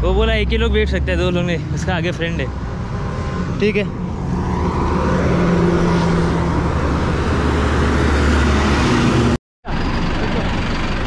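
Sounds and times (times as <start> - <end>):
road traffic noise: 0.0 - 11.0
vehicle engine running: 4.8 - 11.0.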